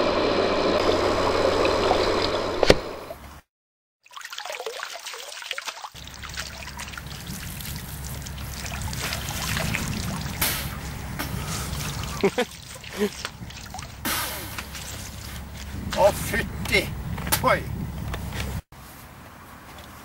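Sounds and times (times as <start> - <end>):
water trickling and splashing: 4.0 - 16.1
steady low rumble: 6.0 - 18.6.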